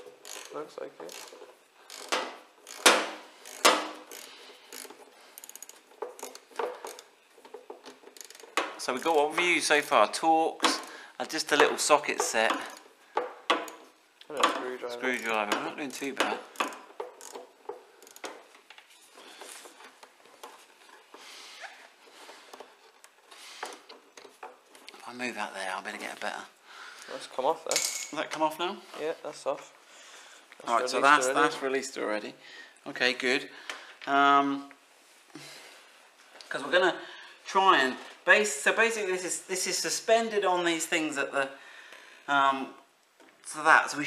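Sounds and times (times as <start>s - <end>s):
ratchet clicking: 0.0s - 8.7s, 16.5s - 18.4s.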